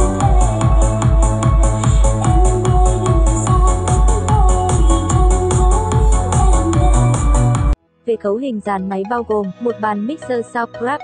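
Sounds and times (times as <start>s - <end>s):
electronic dance music: 0.0s - 7.8s.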